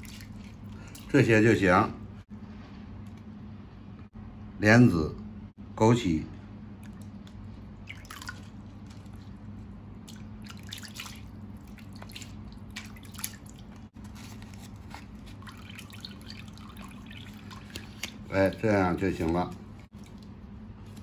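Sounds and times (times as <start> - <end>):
water dripping into a basin: 0.0 - 1.2, 6.8 - 9.3, 10.0 - 13.9, 15.4 - 20.4
steady low hum: 0.0 - 21.0.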